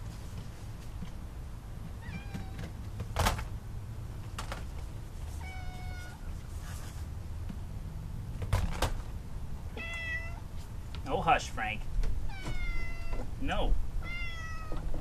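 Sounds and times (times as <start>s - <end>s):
cat meowing: 2.0s - 2.6s, 5.4s - 6.3s, 9.7s - 10.5s, 12.3s - 13.3s, 14.0s - 14.9s.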